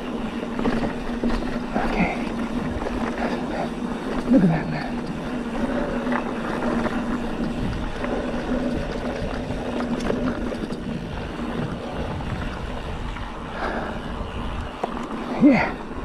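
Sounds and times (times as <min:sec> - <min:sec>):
steady hum: 0:00.0 - 0:16.0
tyres rolling on loose dirt: 0:00.0 - 0:16.0
wind rushing over microphone: 0:04.5 - 0:16.0.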